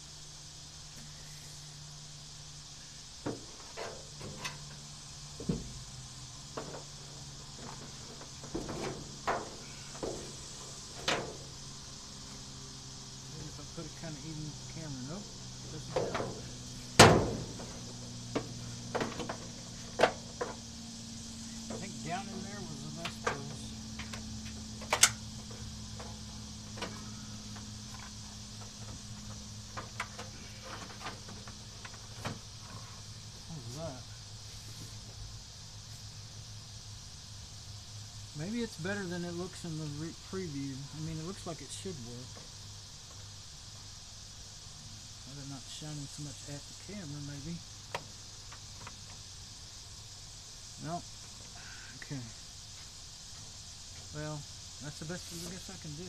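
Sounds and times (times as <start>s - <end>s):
low hum and hiss: 0.0s - 56.0s
objects knocking and clunking: 7.6s - 10.4s, 15.9s - 20.6s.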